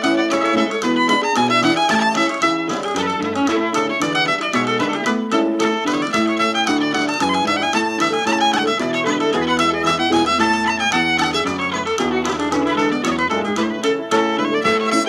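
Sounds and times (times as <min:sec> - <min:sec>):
fiddle playing a hornpipe: 0:00.0 - 0:15.0
low accompanying notes: 0:00.0 - 0:15.0.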